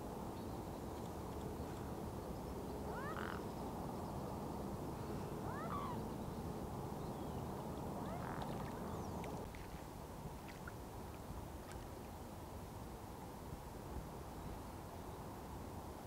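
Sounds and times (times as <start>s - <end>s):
distant road traffic hum: 0.6s - 9.5s
bird calls: 2.8s - 3.6s, 5.2s - 6.4s, 7.0s - 9.4s.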